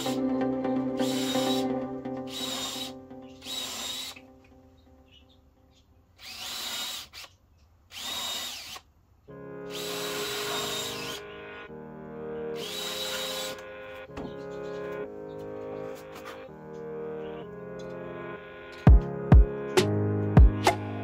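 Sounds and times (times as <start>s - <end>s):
cordless drill boring into wood: 1.0s - 1.6s, 2.3s - 4.2s, 6.2s - 8.9s, 9.7s - 11.2s, 12.6s - 13.5s.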